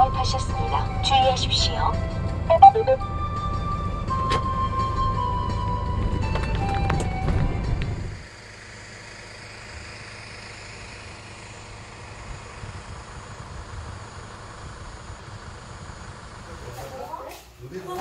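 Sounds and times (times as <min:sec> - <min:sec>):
low rumble: 0:00.0 - 0:08.2.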